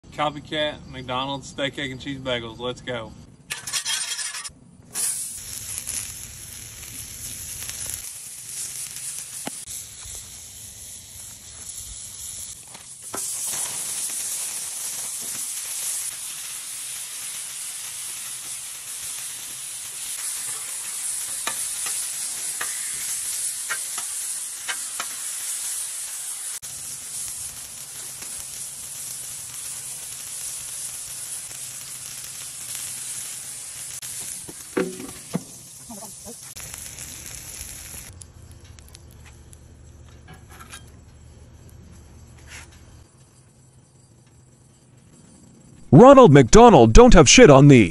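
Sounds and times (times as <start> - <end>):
food sizzling on a griddle: 3.7 - 41.3.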